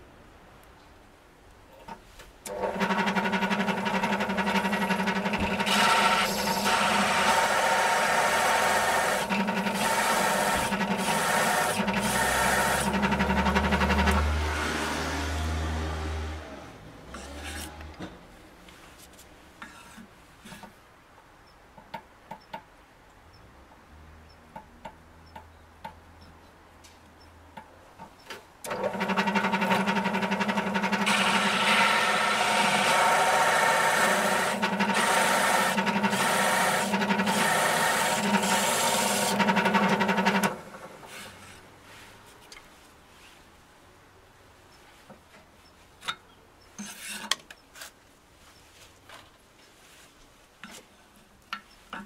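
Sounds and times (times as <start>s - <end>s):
drill press humming: 2.5s - 18.0s, 28.7s - 41.4s
rasping cut through wood: 2.7s - 15.3s, 17.1s - 17.9s, 28.9s - 41.6s.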